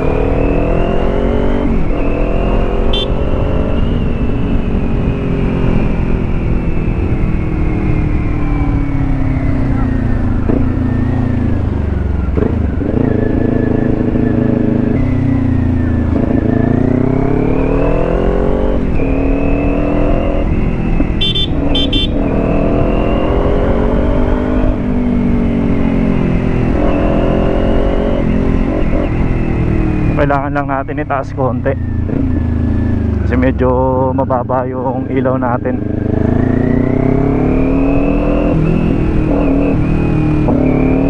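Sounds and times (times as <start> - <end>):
low wind rumble: 0.0 - 41.0
motorcycle engine running: 20.8 - 22.4.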